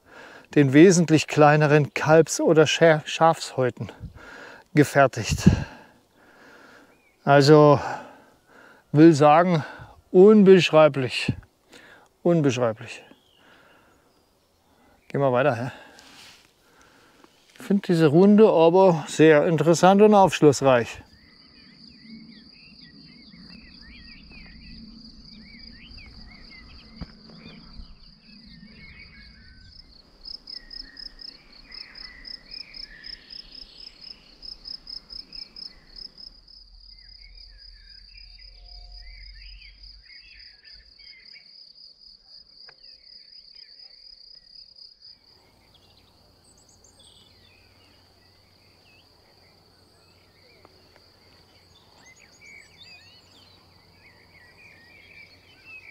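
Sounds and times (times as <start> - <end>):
insect trilling and chirping: 13.1 - 55.9
bird calls: 20.2 - 41.6, 45.3 - 55.9.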